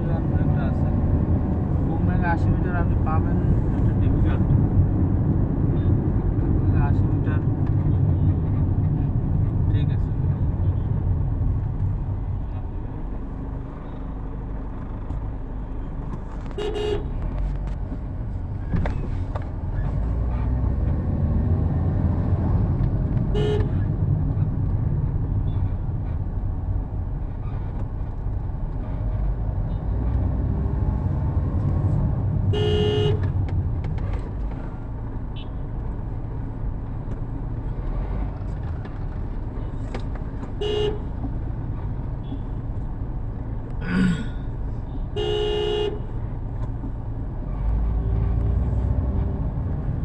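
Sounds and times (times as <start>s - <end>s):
road traffic rumble: 0.0s - 50.0s
vehicle horn tooting: 16.6s - 17.1s, 23.3s - 23.8s, 32.5s - 33.3s, 40.6s - 41.1s, 45.2s - 46.1s.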